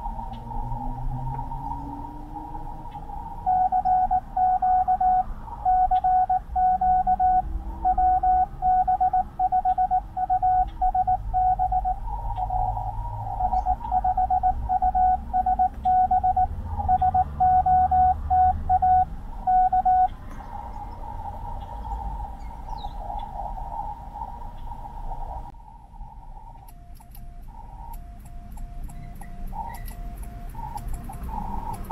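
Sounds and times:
morse code tone: 3.4 - 20.2.

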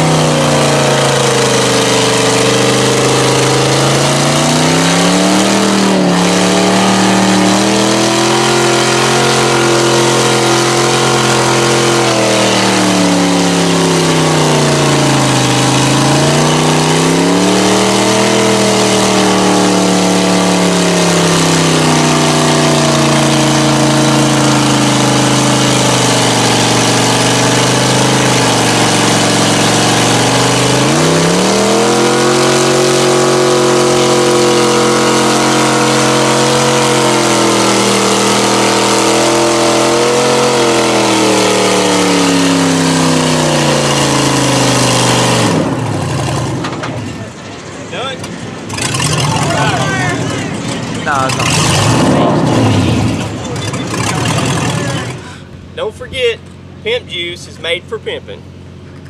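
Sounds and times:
tires spinning in mud: 0.0 - 58.0
truck engine revving: 0.0 - 59.0.

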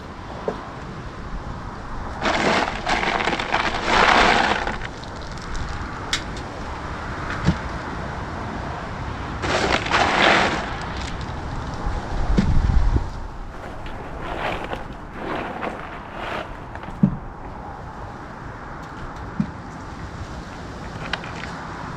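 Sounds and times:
ice cubes clattering into cooler: 2.2 - 5.8, 9.4 - 11.3.

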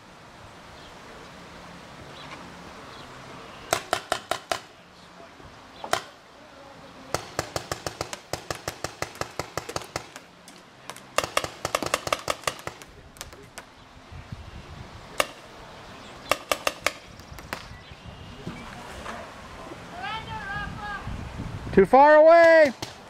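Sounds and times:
paintball markers firing: 3.7 - 4.7, 7.1 - 10.3, 10.9 - 13.7, 15.2 - 15.4, 16.2 - 17.7, 22.4 - 23.0.

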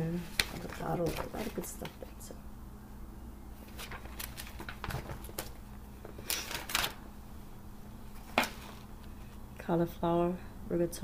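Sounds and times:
magazine paper crackling and rustling: 0.2 - 2.2, 3.6 - 7.0, 8.1 - 9.3.

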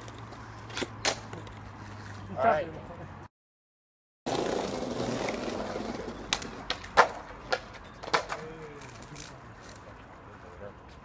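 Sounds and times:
skateboard clattering down: 4.3 - 8.4
skateboard wheels rolling on pavement: 4.3 - 11.0.

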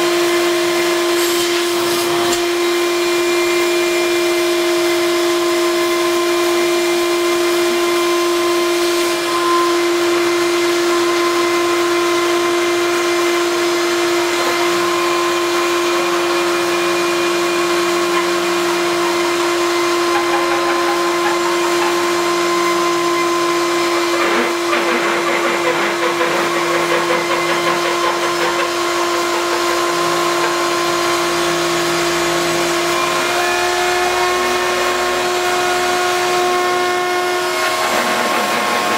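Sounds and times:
router spindle whine: 0.0 - 38.9
stepper motors humming: 17.4 - 35.3.

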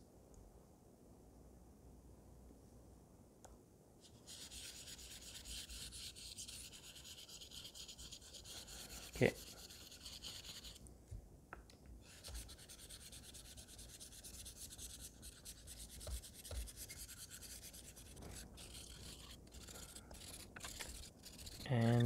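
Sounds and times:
razor honing on whetstone: 4.6 - 10.8, 12.1 - 22.0.

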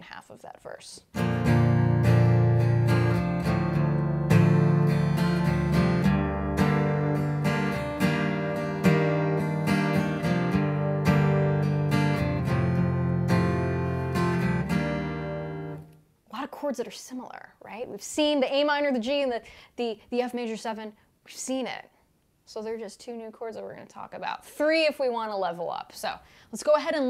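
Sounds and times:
acoustic guitar strumming chords: 1.1 - 16.0.

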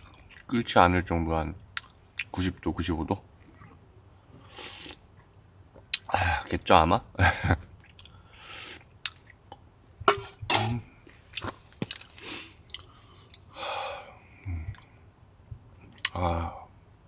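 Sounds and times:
person chewing: 11.3 - 13.5, 14.5 - 14.9
breathy throaty sounds: 12.4 - 15.0, 16.1 - 16.8.

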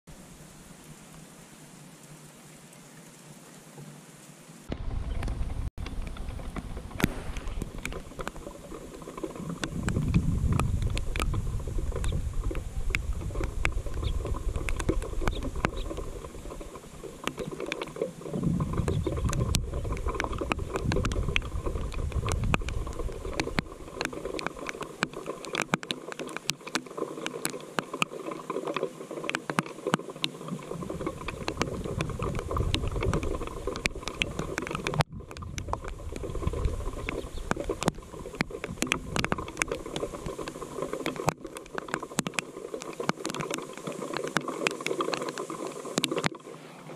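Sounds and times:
rain falling: 0.1 - 46.9
raindrops ticking: 4.2 - 46.6.

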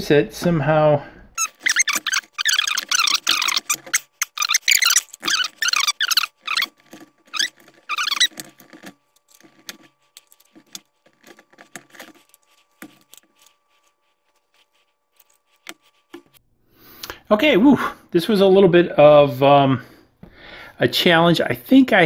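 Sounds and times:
plastic parts squeaking and creaking: 1.4 - 16.4.

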